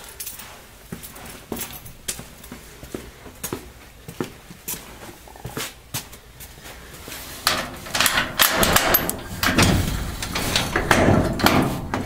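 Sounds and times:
garage door rattling up: 7.4s - 12.0s.

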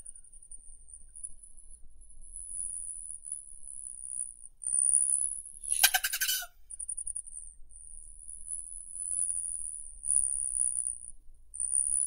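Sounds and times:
hummingbird buzzy chatter: 5.7s - 6.5s.

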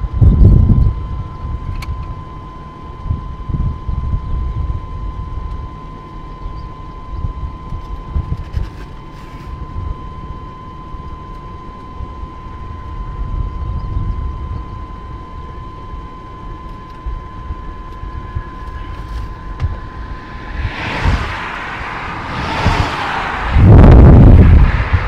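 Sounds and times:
wind rumbling on microphone: 0.0s - 2.2s, 2.9s - 5.7s, 6.5s - 10.2s, 12.0s - 15.0s, 16.8s - 25.0s
steady high-pitched tone: 9.6s - 25.0s
rushing hiss: 18.8s - 25.0s.

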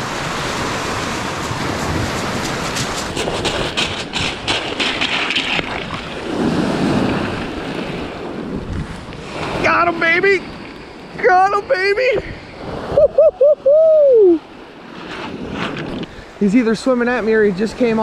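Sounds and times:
waves washing onto pebbles: 0.0s - 10.4s
wind on microphone: 0.0s - 18.0s
crunching on pebbles: 1.5s - 6.1s.

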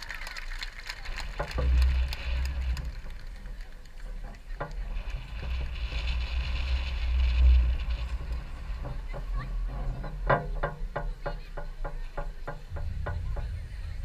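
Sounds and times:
distant crowd chatter: 0.0s - 14.0s
wind buffeting microphone: 0.0s - 14.0s.

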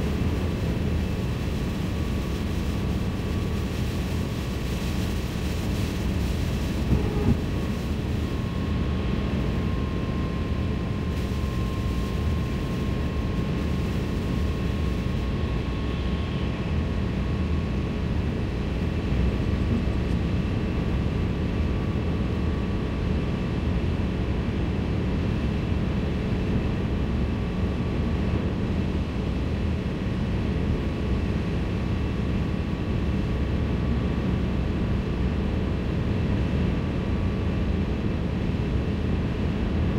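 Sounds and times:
faint steady whine: 0.0s - 39.9s
road and tyre noise: 3.8s - 9.6s.

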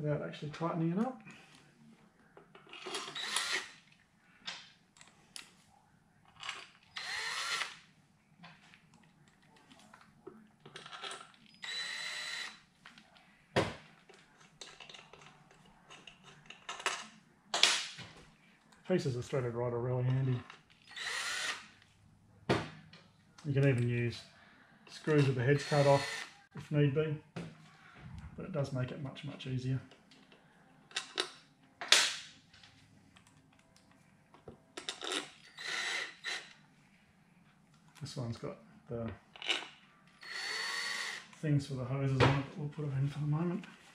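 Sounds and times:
cordless drill whine: 3.0s - 3.7s, 7.0s - 7.8s, 11.6s - 12.6s, 20.8s - 21.7s, 25.2s - 26.3s, 35.4s - 36.5s, 40.2s - 41.3s.

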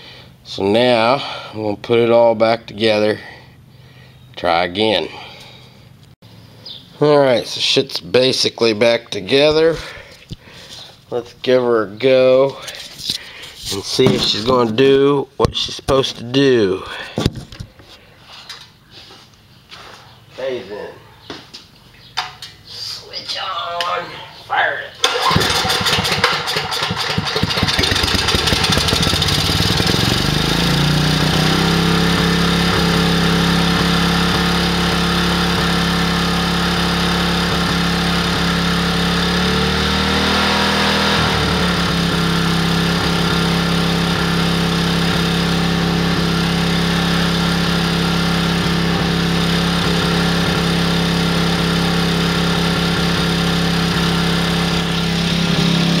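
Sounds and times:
generator engine running: 12.6s - 15.0s, 25.0s - 56.0s.

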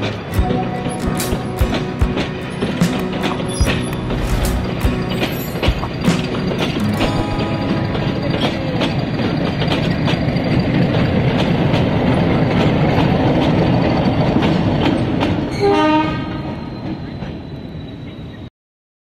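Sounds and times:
wheels clicking over rail joints: 0.0s - 15.7s
train rumbling past: 0.0s - 18.5s
locomotive horn blast: 15.6s - 16.6s.

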